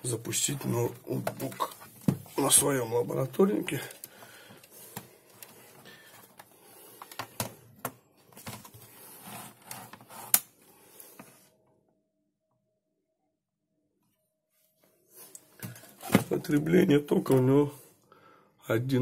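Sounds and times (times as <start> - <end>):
laptop being handled: 0.6 - 10.5, 15.6 - 16.7.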